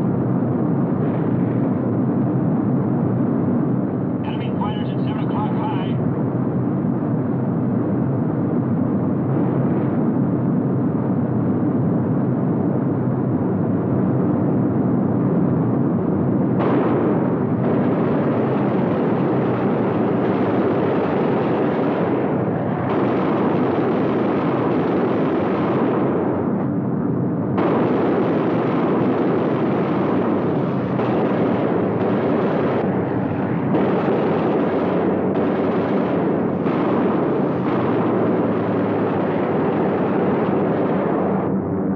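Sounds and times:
aircraft engines roaring: 0.0 - 41.9
machine guns firing: 16.6 - 26.5, 27.6 - 41.4.

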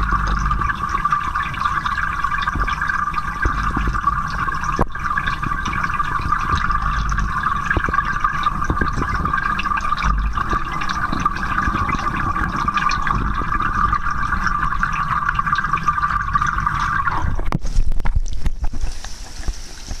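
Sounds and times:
knocks and splashing: 2.3 - 14.1
underwater water hiss: 18.7 - 20.0.

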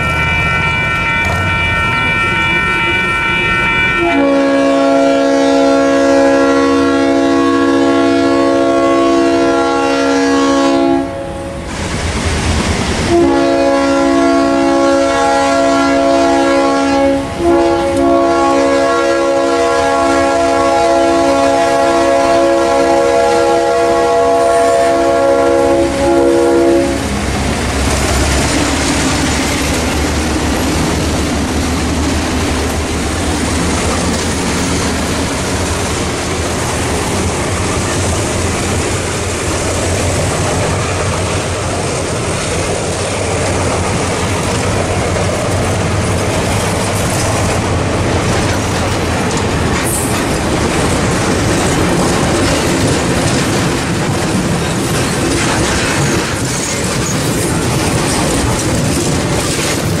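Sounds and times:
train air horn blasts: 0.0 - 11.7, 13.1 - 27.1
wheels clicking over rail joints: 27.1 - 60.0.

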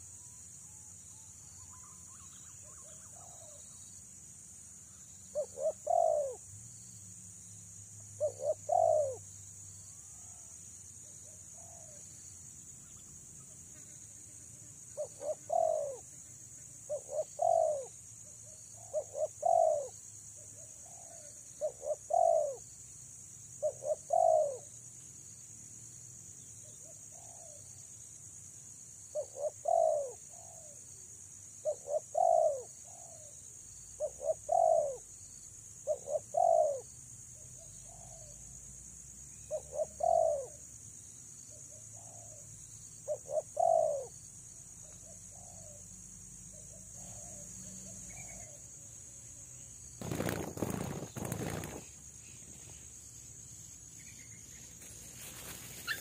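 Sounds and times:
dove cooing: 5.3 - 6.4, 8.2 - 9.2, 15.0 - 16.0, 16.9 - 17.9, 18.8 - 19.9, 20.8 - 22.6, 23.6 - 24.7, 29.2 - 30.8, 31.6 - 33.3, 34.0 - 35.0, 35.8 - 36.8, 39.5 - 40.6, 43.1 - 44.1.

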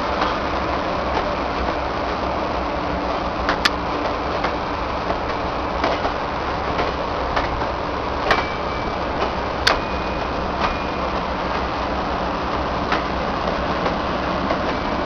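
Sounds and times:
train rail rumble: 0.0 - 15.0
wheels clicking over rail joints: 3.4 - 11.8, 12.7 - 15.0.

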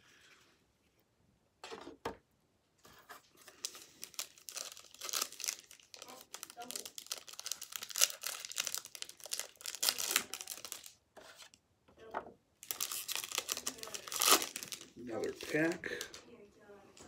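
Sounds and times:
plastic wrapper crinkling and tearing: 3.4 - 11.6, 12.6 - 16.2.

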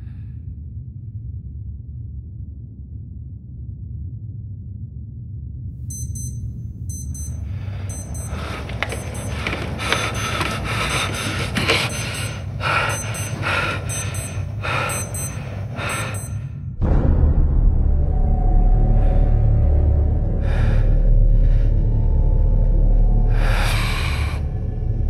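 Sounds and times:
electronic alarm beeping: 5.9 - 16.5.

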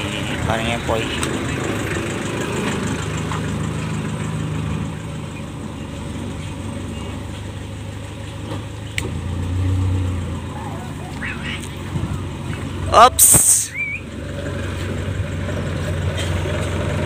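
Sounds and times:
van engine idling: 0.0 - 17.0.

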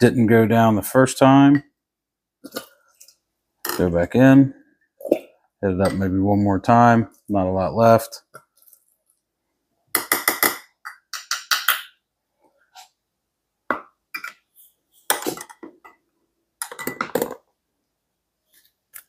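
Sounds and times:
glassware clinking and knocking: 10.0 - 12.0, 13.7 - 14.4, 16.6 - 17.4.

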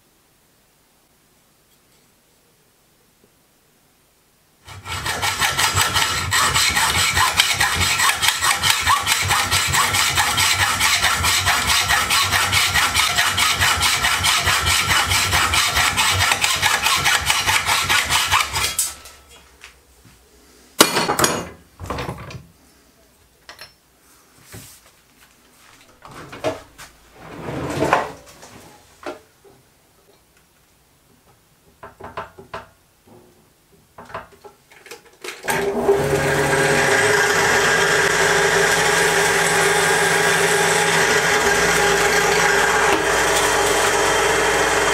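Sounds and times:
hand saw cutting steel: 4.7 - 19.2, 36.6 - 44.9.

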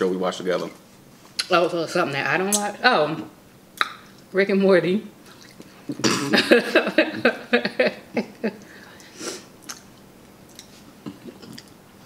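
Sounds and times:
person laughing: 5.9 - 8.7.

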